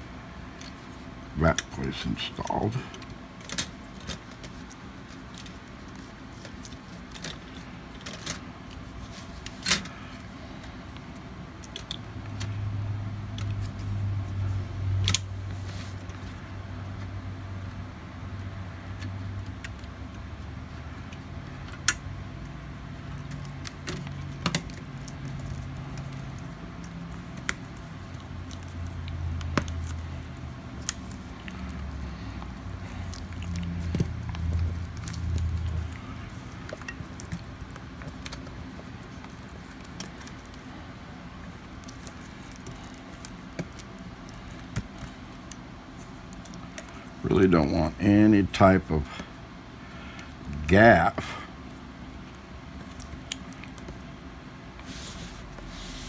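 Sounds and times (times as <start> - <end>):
clicks and taps of laptop parts: 23.1 - 26.2.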